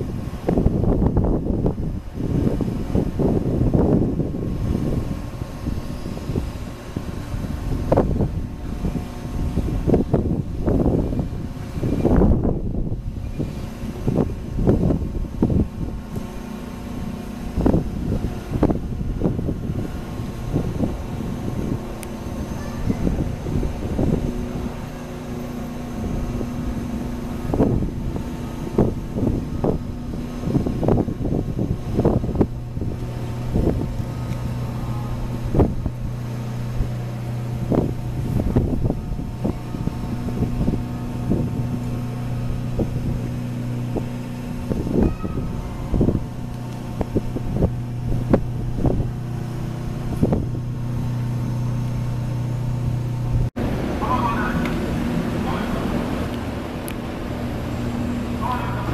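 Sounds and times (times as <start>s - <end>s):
ferry engines droning: 0.0s - 58.9s.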